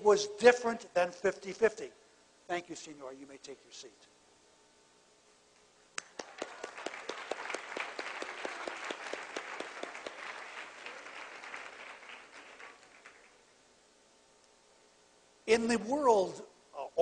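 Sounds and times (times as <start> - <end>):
audience applauding: 6.0 - 13.4.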